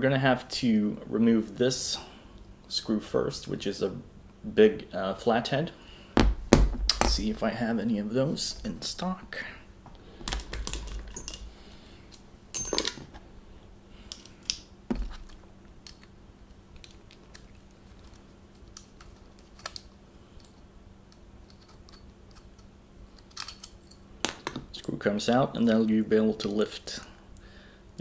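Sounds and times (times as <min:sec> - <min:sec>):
metal parts clicking and knocking: 0:10.2 - 0:11.5, 0:12.5 - 0:13.2, 0:21.5 - 0:24.7.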